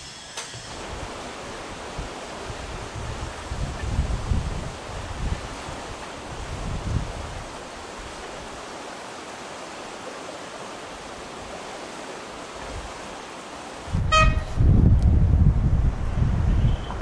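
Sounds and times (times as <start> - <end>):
steady outdoor hiss: 0.0 - 17.0
wind rumble on microphone: 0.6 - 8.6, 13.8 - 17.0
railbus horn toot: 14.0 - 14.6, 16.5 - 17.0.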